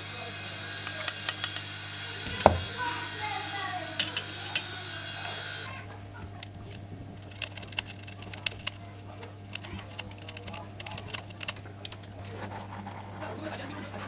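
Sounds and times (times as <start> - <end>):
low electrical hum: 0.0 - 14.0
soldering clicks and crackles: 3.9 - 5.6, 6.2 - 12.4.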